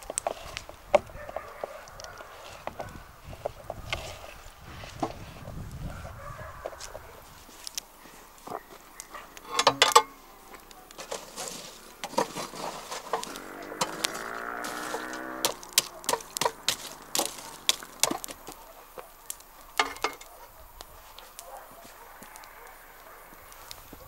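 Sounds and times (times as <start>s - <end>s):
chicken calling: 13.2s - 19.2s
sharp taps and knocks: 14.9s - 18.6s.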